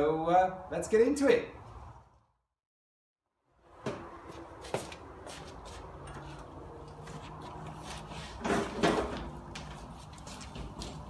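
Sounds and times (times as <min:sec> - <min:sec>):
hose knocking and scraping: 0:06.0 - 0:11.0.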